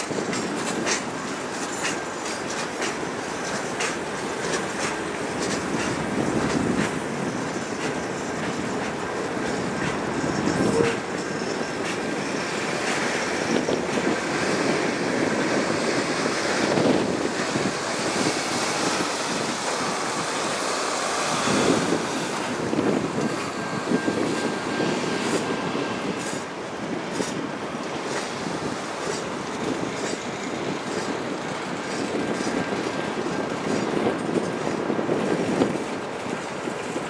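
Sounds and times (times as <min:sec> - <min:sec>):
freight train rolling past: 0:00.0 - 0:37.0.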